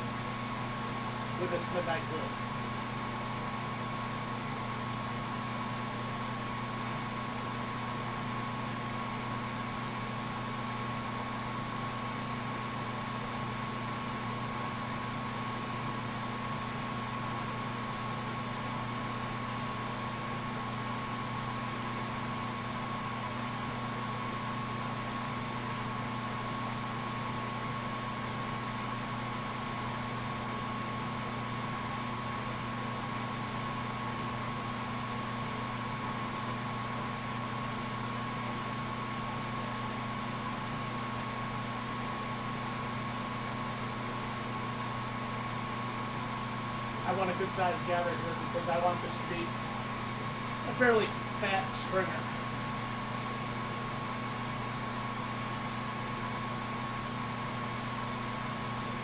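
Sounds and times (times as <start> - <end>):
thin high whine: 45.9 - 53.9.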